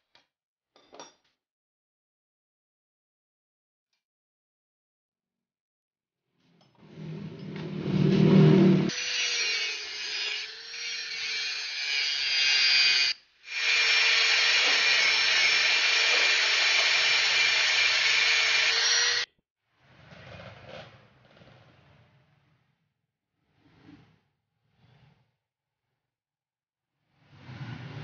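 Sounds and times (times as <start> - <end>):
angle grinder cutting metal: 8.0 - 19.3.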